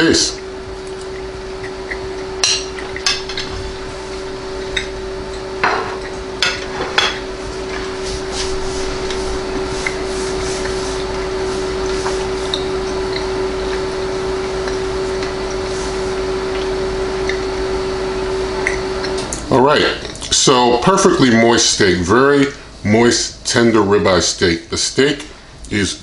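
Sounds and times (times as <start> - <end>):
low hum: 0.0 - 24.0
chewing: 9.8 - 15.7.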